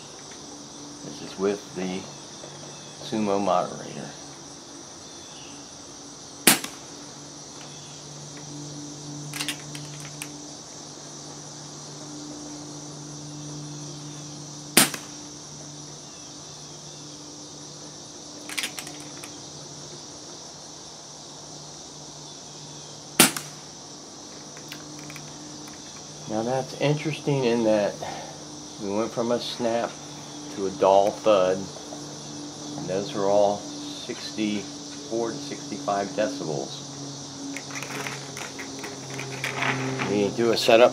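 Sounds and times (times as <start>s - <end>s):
air rifle shots: 6.4s - 6.9s, 14.8s - 15.2s, 23.2s - 23.6s
rifle action clicks: 9.4s - 10.3s, 18.5s - 19.3s.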